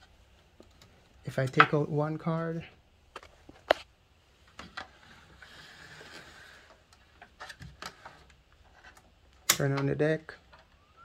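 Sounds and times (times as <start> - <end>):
soft scraping slide: 4.9 - 6.8.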